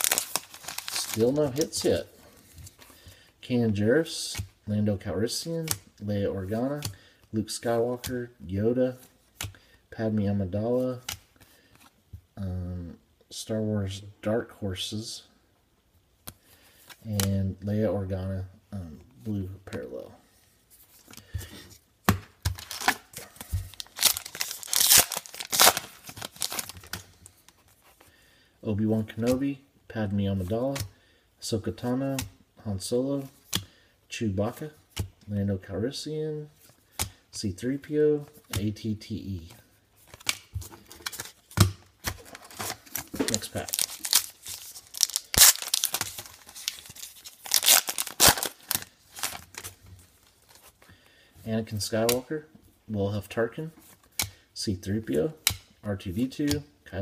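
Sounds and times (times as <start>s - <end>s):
foil wrapper tearing and crinkling: 0.0s - 1.7s, 23.7s - 26.8s, 42.3s - 49.6s.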